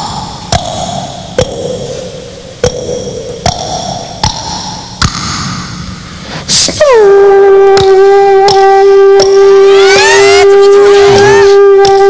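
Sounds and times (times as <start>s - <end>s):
hummed tone: 6.5s - 12.0s.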